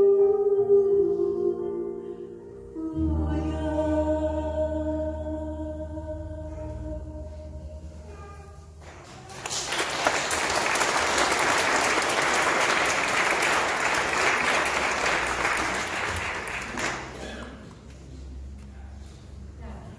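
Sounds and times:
audience applause: 9.0 - 17.6.

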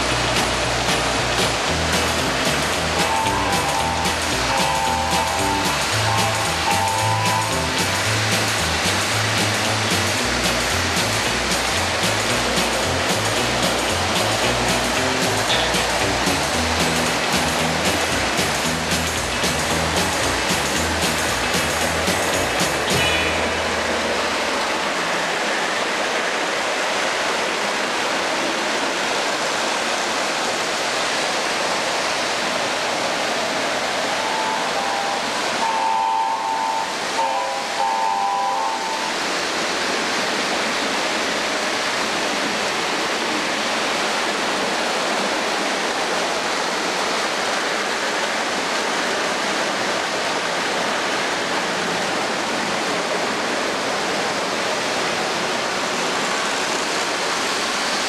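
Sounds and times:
toy train wheels and motor rumbling: 0.0 - 24.1
short horn blasts: 3.0 - 7.8, 23.0 - 23.7, 34.2 - 39.1.

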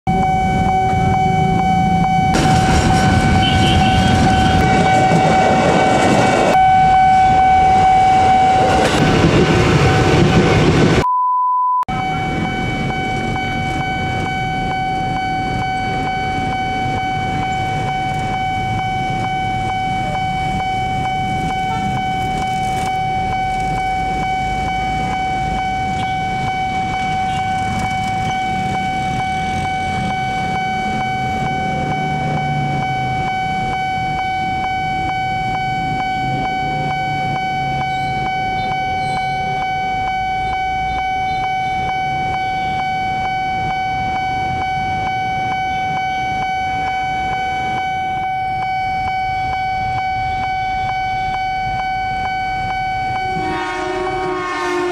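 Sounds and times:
pure beep: 0.1 - 9.0, 11.0 - 54.9
level crossing alarm tone: 0.1 - 11.1, 11.8 - 54.9
train rumbling past: 2.4 - 11.0, 53.3 - 54.9.

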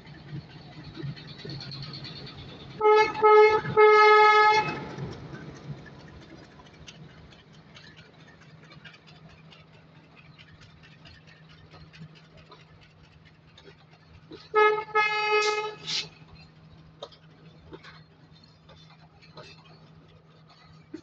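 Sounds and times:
train carriages rumbling: 0.0 - 21.0
wheels clicking over rails: 0.0 - 21.0
locomotive horn blasts: 2.8 - 4.9, 14.5 - 15.8.

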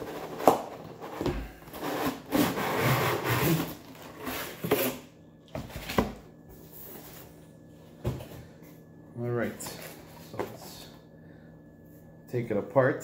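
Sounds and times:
packaging rubbing and scraping: 0.0 - 5.0.

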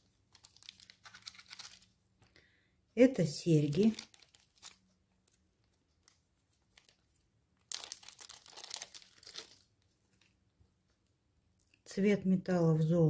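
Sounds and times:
plastic bag crinkling: 0.0 - 2.0, 3.2 - 10.3.

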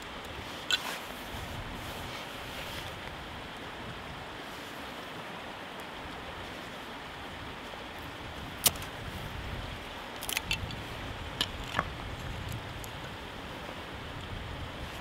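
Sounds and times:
stream rushing: 0.0 - 15.0
clicks and knocks of wood: 10.2 - 10.8, 11.4 - 13.0.

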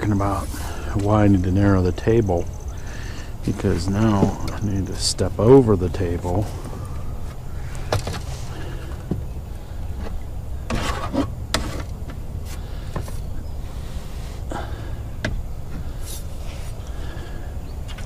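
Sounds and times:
steady low rumble: 0.0 - 10.7.

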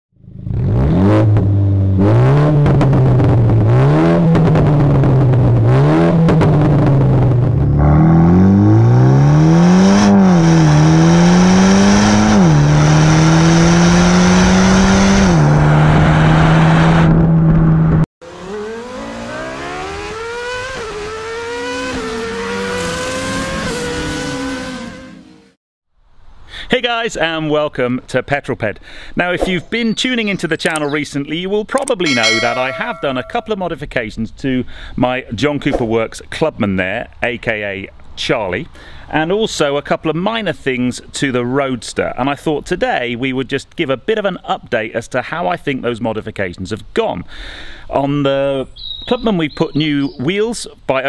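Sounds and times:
car engine revving: 0.3 - 25.3.

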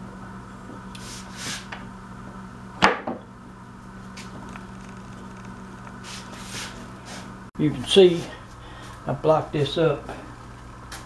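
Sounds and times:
wood scraping on wood: 4.1 - 7.3.

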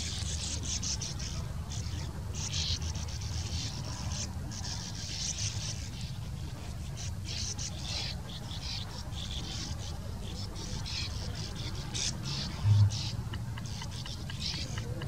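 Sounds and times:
birds twittering: 0.0 - 15.0
steady low rumble: 11.8 - 15.0.

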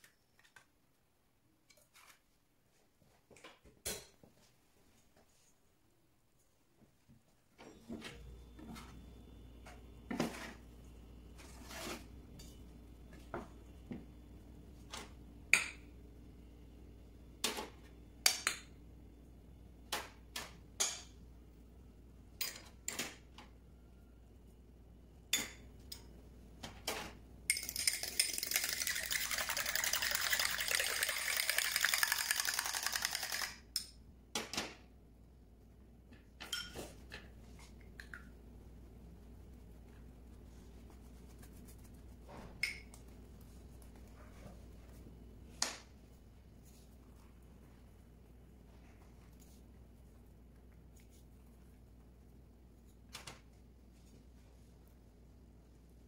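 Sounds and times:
fast scratchy stirring: 27.7 - 33.5.

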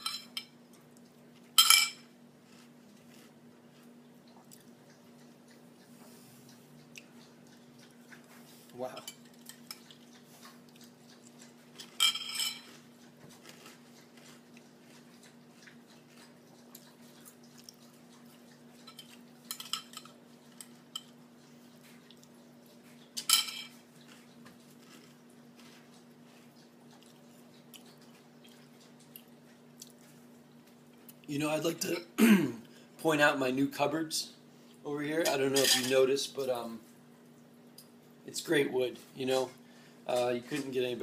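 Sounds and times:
low steady hum: 0.0 - 41.0
spoon clinking in a cereal bowl: 11.9 - 12.8.

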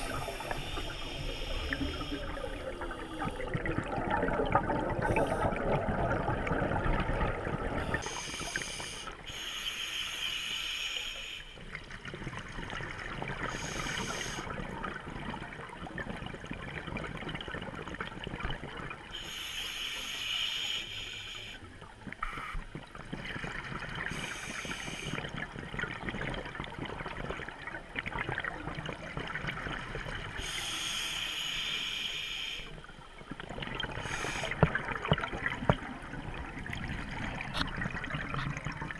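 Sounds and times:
regulator hissing and bubbling: 0.0 - 11.6, 13.3 - 14.7, 24.0 - 25.5, 30.3 - 32.9, 33.5 - 35.8
underwater rush: 0.0 - 38.9.

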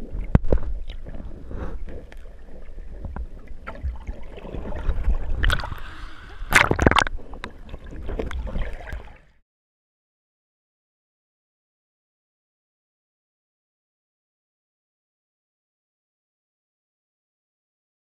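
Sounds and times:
underwater water rumbling: 0.0 - 9.4.

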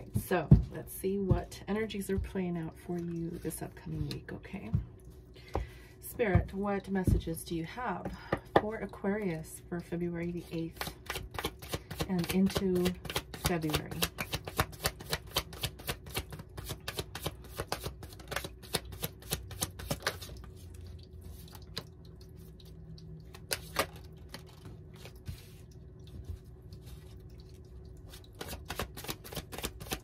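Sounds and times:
cards being shuffled: 10.8 - 20.4, 23.3 - 25.6, 28.1 - 30.0.

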